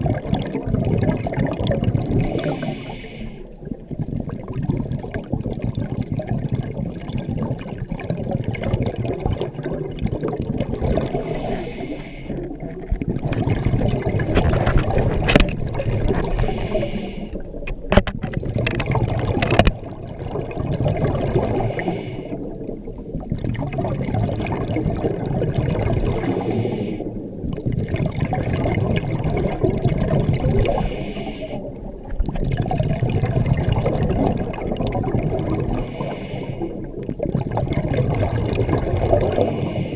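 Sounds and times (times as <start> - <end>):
bubbly gurgling exhalations: 0.0 - 39.9
diver breathing through regulator: 2.2 - 3.5, 11.0 - 12.6, 16.2 - 17.5, 21.5 - 22.5, 26.2 - 27.2, 30.6 - 31.8, 35.6 - 36.9, 39.4 - 39.9.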